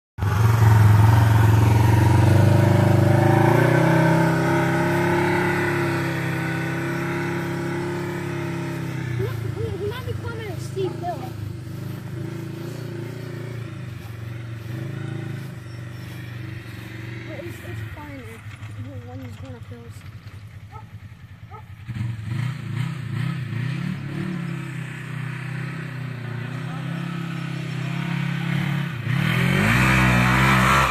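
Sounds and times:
vehicle engine accelerating: 0.2 - 30.9.

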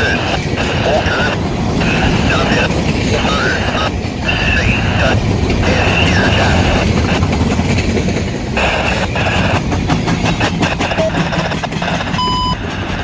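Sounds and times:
train wheels rumbling on rail: 0.0 - 13.0
wheels clacking over rail joints: 6.5 - 8.6, 9.4 - 12.2.

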